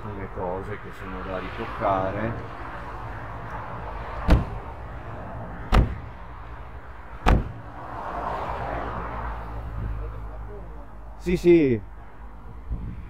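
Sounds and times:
sharp knocks on steel: 4.3 - 4.6, 5.7 - 6.0, 7.2 - 7.6.

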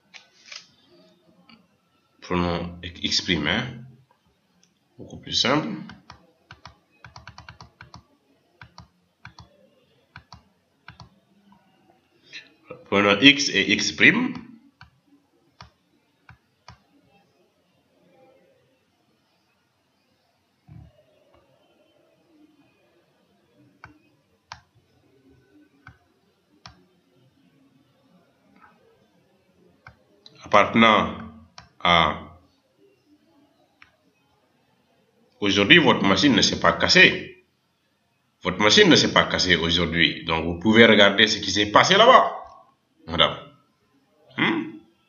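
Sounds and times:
computer mouse clicks: 5.9 - 11.6.

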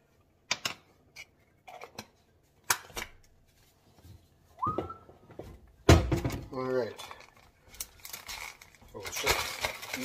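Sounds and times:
plastic bag handling: 6.5 - 10.0.

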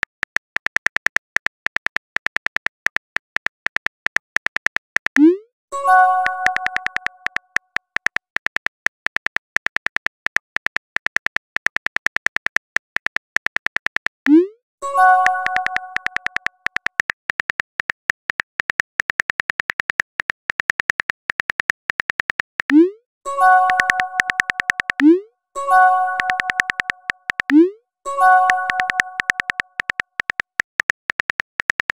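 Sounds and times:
phone keyboard clicks: 0.0 - 5.3, 6.2 - 14.3, 15.2 - 22.8, 23.6 - 25.2, 25.8 - 31.9
multi-tone chime: 5.7 - 7.2, 14.8 - 16.2, 23.3 - 24.6, 25.6 - 27.0, 28.1 - 29.4.

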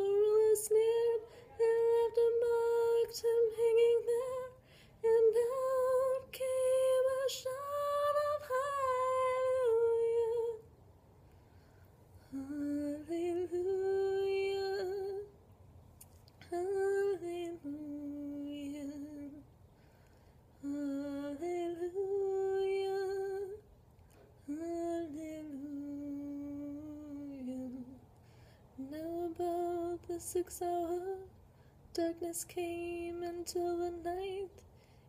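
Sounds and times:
woman singing unaccompanied: 0.0 - 10.7, 12.2 - 15.4, 16.4 - 19.5, 20.6 - 23.7, 24.4 - 28.1, 28.8 - 34.7
breaths: 4.6 - 5.0, 11.2 - 12.3, 19.6 - 20.6, 28.1 - 28.8, 31.4 - 31.9, 34.6 - 35.0.

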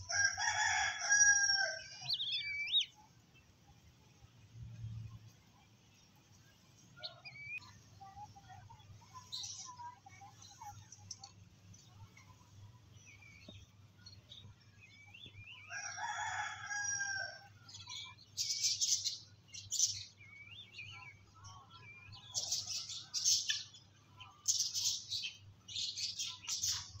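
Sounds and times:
rooster crowing: 0.0 - 2.2, 15.7 - 17.5
small birds chirping: 0.0 - 27.0.

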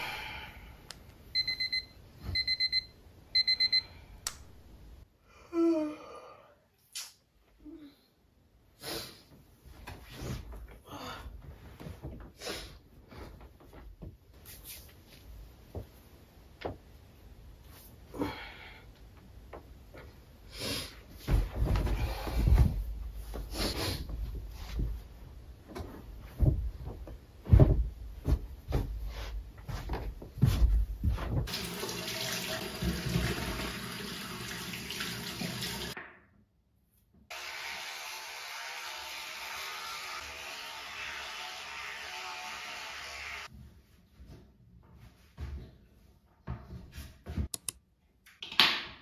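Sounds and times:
duvet and pillows rustling: 21.1 - 31.5
soft thumps: 25.7 - 31.5
electric toothbrush buzzing: 37.3 - 43.5.

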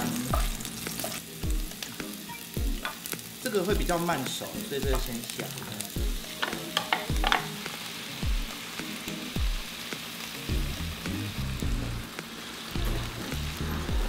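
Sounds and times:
meat and vegetables sizzling in a wok: 0.0 - 14.0
music with a low thumping beat: 1.4 - 4.0, 4.8 - 12.2, 12.8 - 14.0.

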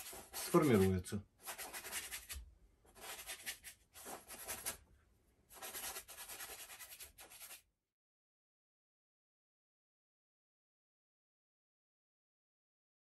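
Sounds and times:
brush scrubbing on canvas: 0.0 - 4.8, 5.5 - 7.6.

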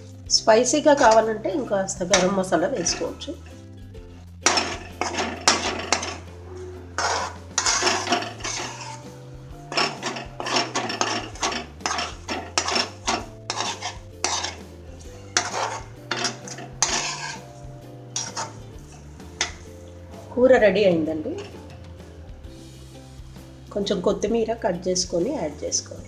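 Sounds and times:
spoon scraping and clinking pan: 0.6 - 3.7, 4.4 - 19.9, 21.3 - 21.8.

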